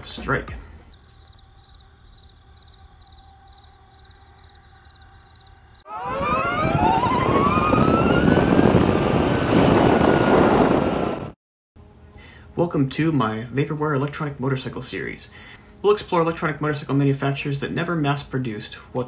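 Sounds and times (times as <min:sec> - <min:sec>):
cricket chirping: 0:00.9 - 0:05.9
loud rising whine: 0:02.5 - 0:11.4.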